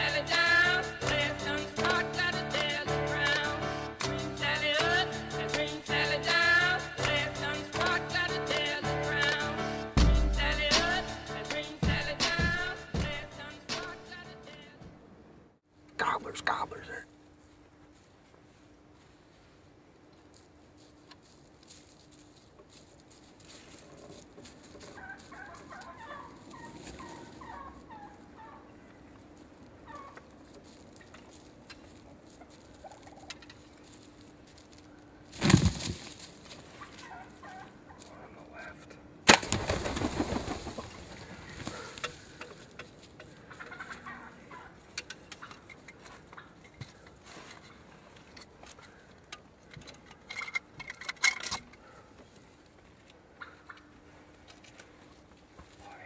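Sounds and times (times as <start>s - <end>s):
turkey gobbling: 24.9s - 28.7s, 29.8s - 30.2s, 32.4s - 33.4s, 36.8s - 38.0s, 43.2s - 44.8s, 53.4s - 53.9s.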